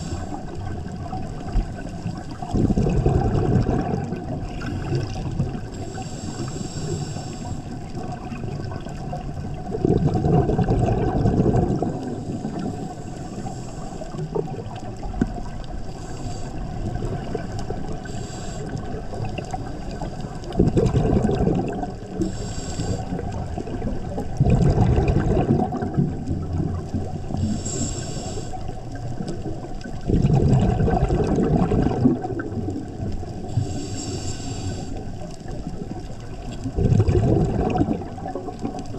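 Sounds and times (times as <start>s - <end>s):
scuba regulator hissing inhalations: 0.0s - 0.7s, 5.5s - 7.9s, 11.9s - 14.3s, 15.8s - 17.3s, 17.9s - 19.2s, 22.1s - 23.4s, 27.3s - 28.8s, 33.4s - 35.3s
bubbling exhaled air: 0.0s - 38.9s
steady low underwater rumble: 0.0s - 38.9s.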